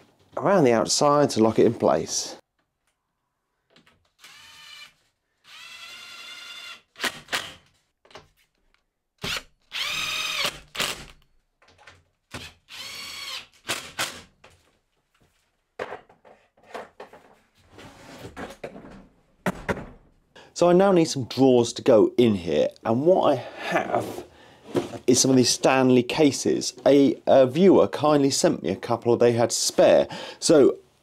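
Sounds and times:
drill motor whine: 0:09.3 - 0:10.6.

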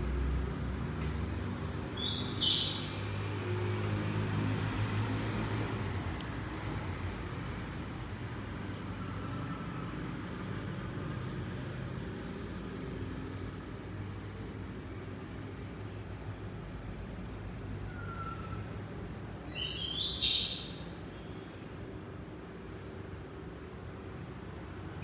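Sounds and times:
monkey squealing: 0:02.0 - 0:03.0
faint monkey call: 0:02.0 - 0:03.1, 0:17.7 - 0:18.8.

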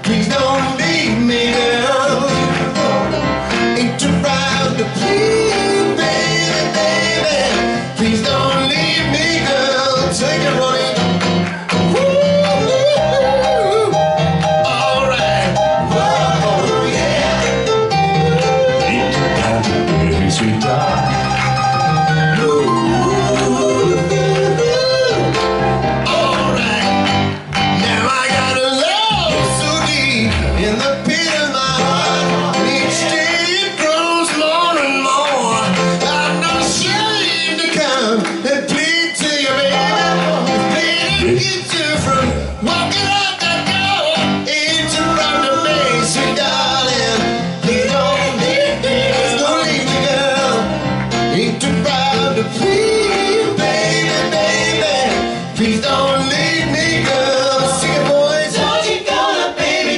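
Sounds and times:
band with drums guitar keyboard: 0:00.0 - 0:59.9
male vocal quartet singing soul: 0:00.0 - 0:59.9
electric guitar: 0:16.8 - 0:38.8.

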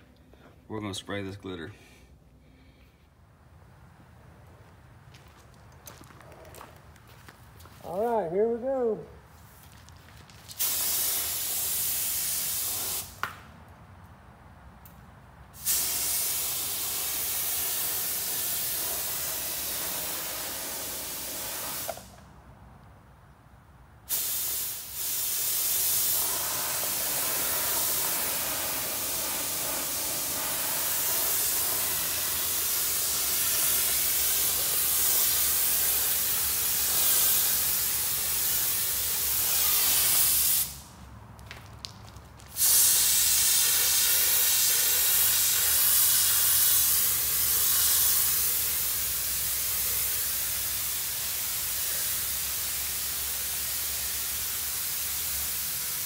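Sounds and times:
spray gun hissing: 0:10.6 - 0:13.2, 0:15.6 - 0:22.1, 0:24.1 - 0:40.8, 0:42.6 - 0:56.0.

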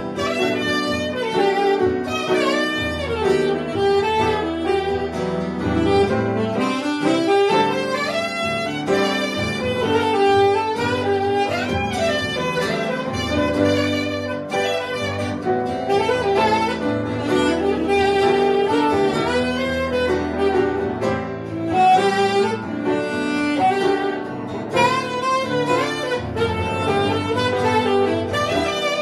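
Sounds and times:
acoustic guitar: 0:00.0 - 0:29.0
grand piano: 0:00.0 - 0:29.0
saxophone melody: 0:00.0 - 0:29.0.

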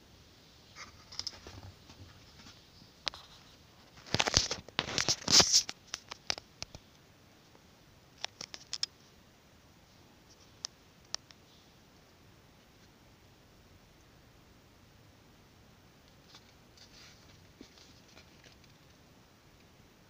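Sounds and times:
scratchy rustling: 0:16.2 - 0:19.0.

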